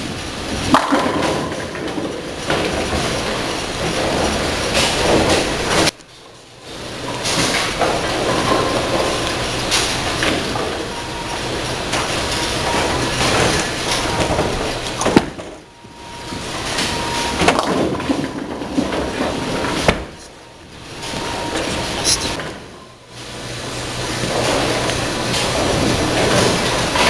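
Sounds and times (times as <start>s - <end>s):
bowling alley din: 0.0s - 27.0s
bowling ball rolling: 0.0s - 27.0s
bowling pins clattering: 0.0s - 27.0s.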